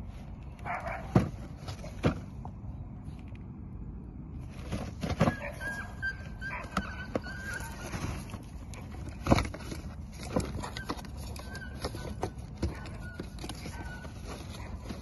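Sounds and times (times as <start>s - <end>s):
cardboard box knocks and scrapes: 1.1s - 2.3s, 4.6s - 5.7s, 6.7s - 15.0s.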